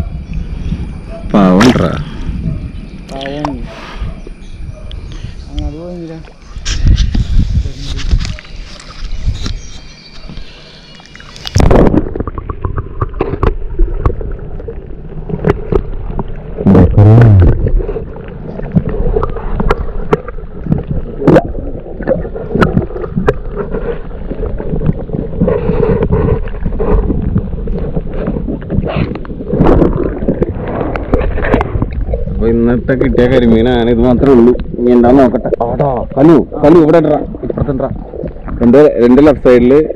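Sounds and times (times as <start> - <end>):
gurgling bubbles: 10.5 - 39.9
muffled underwater knocks and clicks: 11.3 - 36.3, 37.2 - 39.9.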